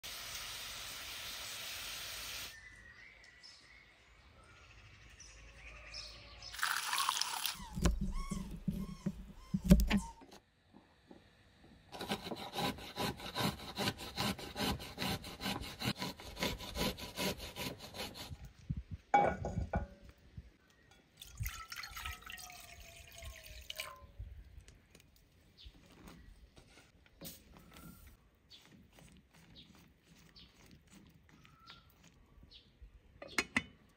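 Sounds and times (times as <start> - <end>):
water poured into metal pan: 6.6 - 7.6, 21.2 - 24.2.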